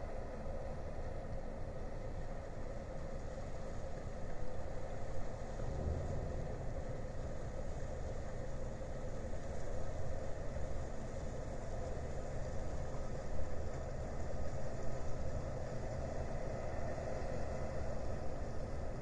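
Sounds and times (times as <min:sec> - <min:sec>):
ship engine rumble: 0:04.3 - 0:16.5.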